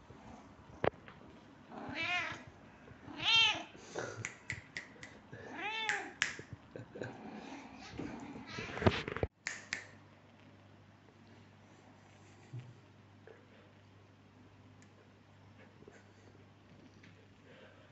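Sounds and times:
cat meowing: 0:01.8 - 0:02.4, 0:03.1 - 0:03.7.

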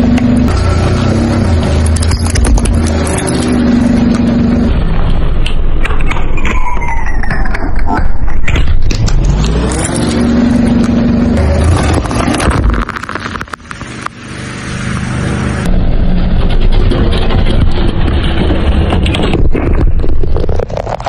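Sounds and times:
car engine: 0:00.0 - 0:06.5, 0:07.6 - 0:21.0
cans crunching under tyre: 0:19.3 - 0:21.0.

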